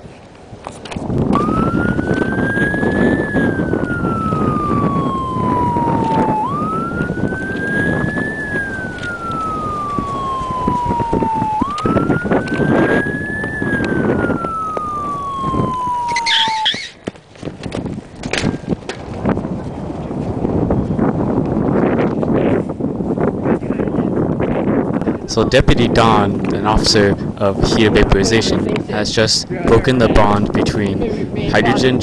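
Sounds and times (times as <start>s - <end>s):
wind on microphone: 0.0s - 32.0s
police siren wailing: 1.3s - 17.0s, 25.5s - 28.6s.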